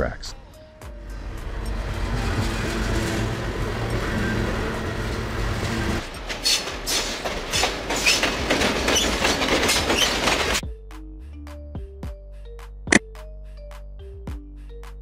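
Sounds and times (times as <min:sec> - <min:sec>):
freight train rumbling: 0:00.9 - 0:10.6
train wheels clacking over rail joints: 0:05.0 - 0:10.6.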